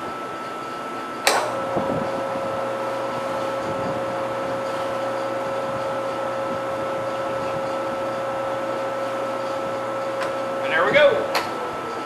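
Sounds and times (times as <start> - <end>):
sharp click: 1.2 - 1.5
milling machine drilling metal: 1.5 - 12.0.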